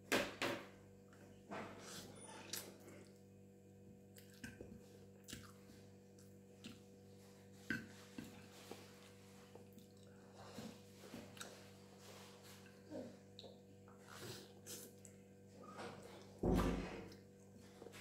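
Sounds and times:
soft chewing: 4.0 - 16.4
wet smacks and slurps: 5.2 - 5.6.

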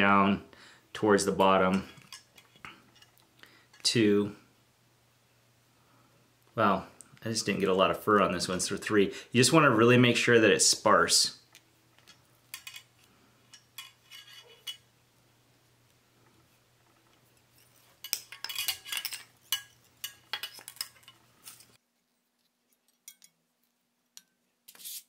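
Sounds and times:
tools clicking and clinking: 11.5 - 12.9, 18.0 - 21.8.

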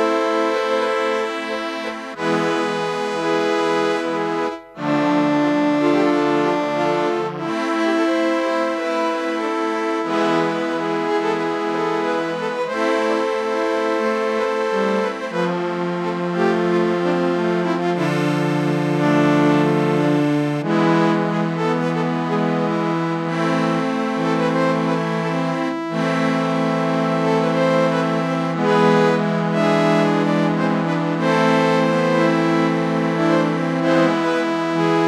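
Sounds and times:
slow accordion film music: 0.0 - 35.0.

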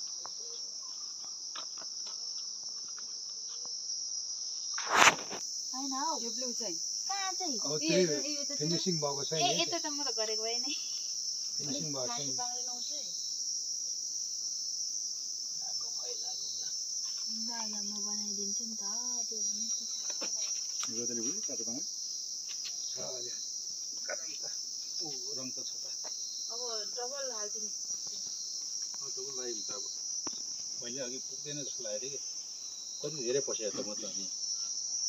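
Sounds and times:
high-pitched insect chorus: 0.0 - 35.0
people talking quietly: 33.0 - 34.4.

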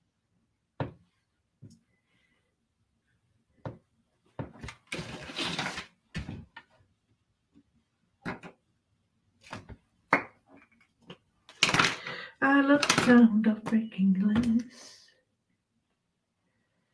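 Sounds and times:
paper sliding rustle: 4.8 - 6.0.

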